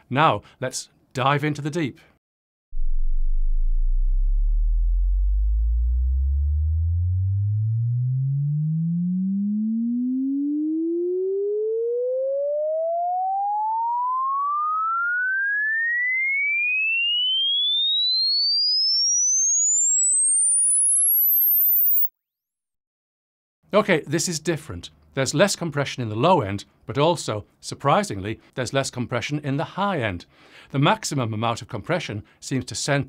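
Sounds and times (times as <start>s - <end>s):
sine wave sweep rising in pitch: 2.8s - 22.1s.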